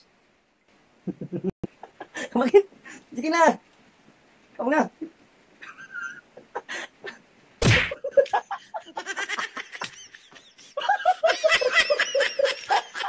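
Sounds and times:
men laughing: 0:01.1 - 0:02.4, 0:07.9 - 0:13.0.

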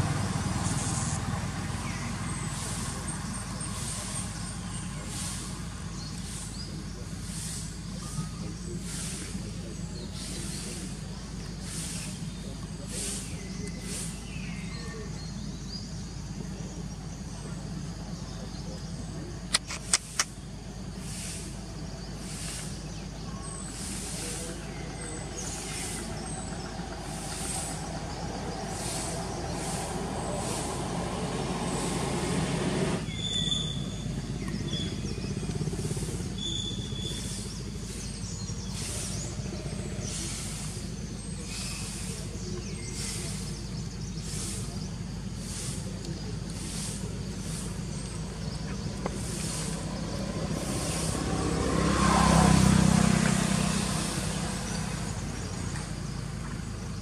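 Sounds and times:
pulsing insect noise: 0:00.0 - 0:57.0
vehicle approaching on road: 0:00.0 - 0:57.0.

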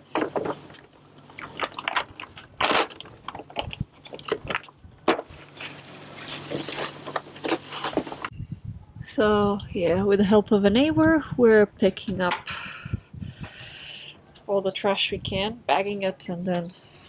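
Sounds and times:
plastic bottles crinkling and clattering: 0:00.0 - 0:08.3.

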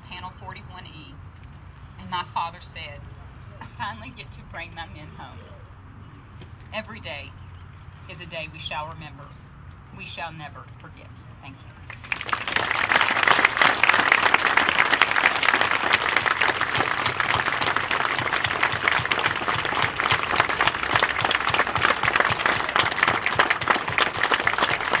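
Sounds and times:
crowd applauding: 0:11.9 - 0:25.0.

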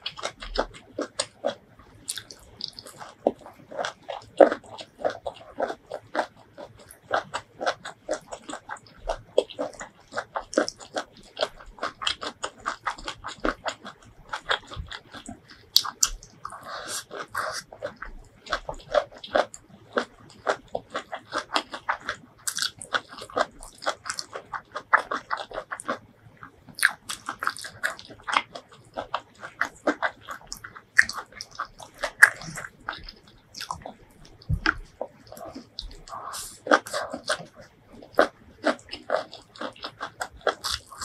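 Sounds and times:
chewing and crunching food: 0:00.0 - 0:41.0.

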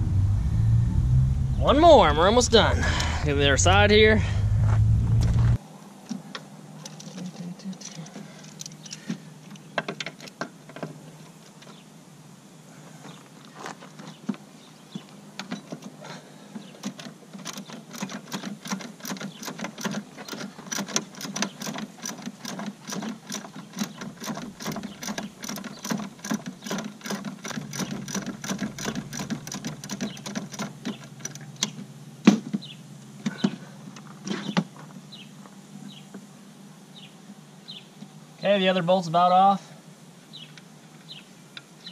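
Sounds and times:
ratchet wrench clicking: 0:17.4 - 0:30.7.

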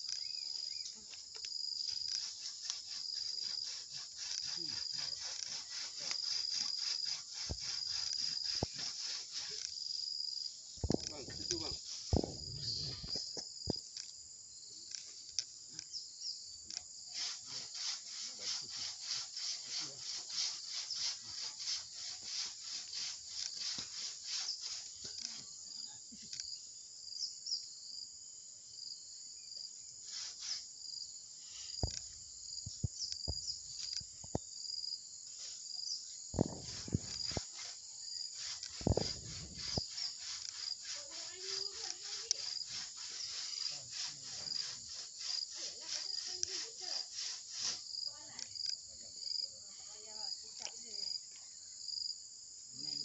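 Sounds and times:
insects chirring: 0:00.0 - 0:53.0
hand saw cutting branch: 0:01.4 - 0:09.9, 0:10.9 - 0:12.4, 0:16.7 - 0:25.5, 0:30.0 - 0:30.7, 0:36.4 - 0:48.3.

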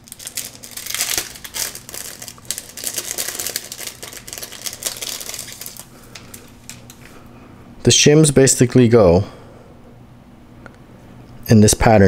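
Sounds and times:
plastic bag crinkling: 0:00.0 - 0:07.1.

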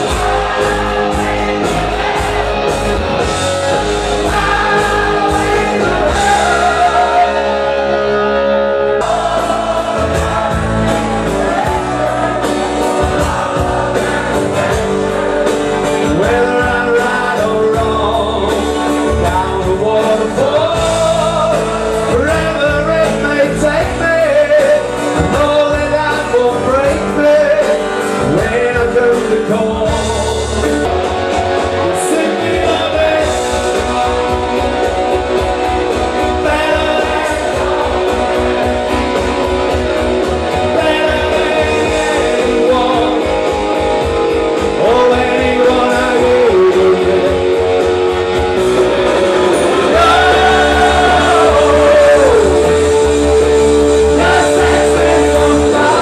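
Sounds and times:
live rock band playing: 0:00.0 - 0:56.0
person singing: 0:40.6 - 0:43.6, 0:44.6 - 0:48.0, 0:49.3 - 0:56.0.

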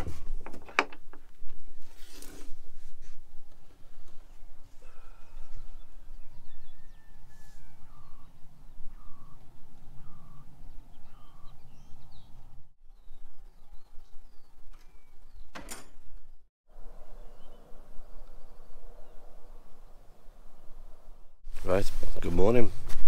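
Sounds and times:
birds calling: 0:04.2 - 0:21.4.

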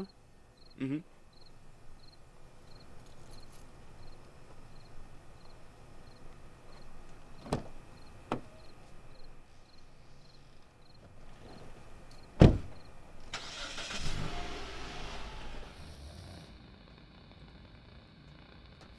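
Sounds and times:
crickets chirping: 0:00.0 - 0:14.7
car door opening and shutting: 0:07.4 - 0:08.6, 0:12.4 - 0:15.7.

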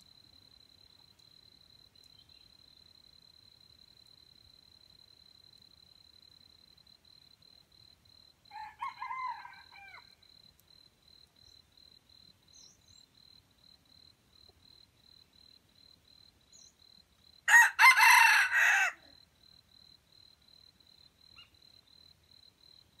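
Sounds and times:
rooster crowing: 0:08.5 - 0:10.2, 0:17.5 - 0:19.1.

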